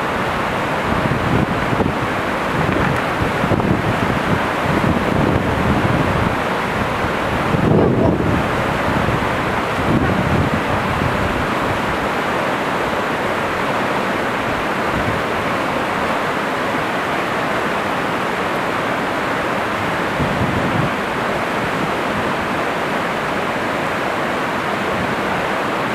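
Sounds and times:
wind on microphone: 0.0s - 13.8s, 14.4s - 16.9s, 19.7s - 24.0s
river rushing over rapids: 0.0s - 25.9s.

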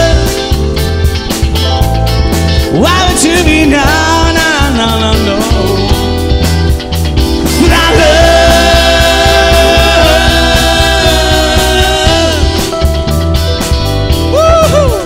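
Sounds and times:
live rock band playing: 0.0s - 15.0s.

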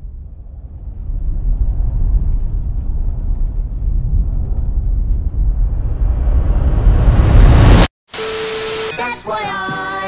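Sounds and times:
deep heavy crash rumble: 0.0s - 7.9s
faint high ringing tone: 4.8s - 6.6s.

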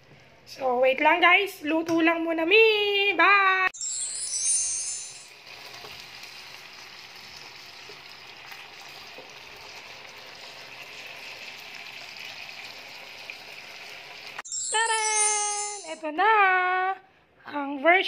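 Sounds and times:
chicken sizzling in oil: 5.3s - 14.4s.

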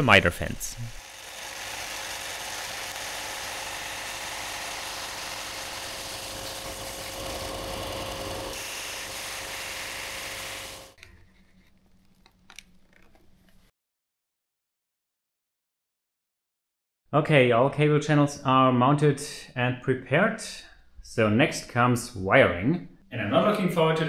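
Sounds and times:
belt sander whirring: 0.7s - 11.0s.

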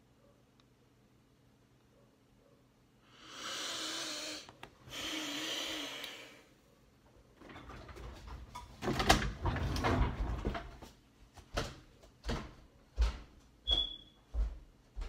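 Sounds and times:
footsteps walking: 10.7s - 15.0s.

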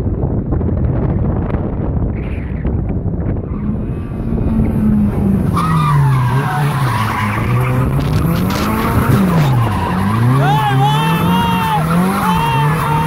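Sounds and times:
car engine revving: 2.2s - 13.0s
tyres squealing: 5.5s - 13.0s.

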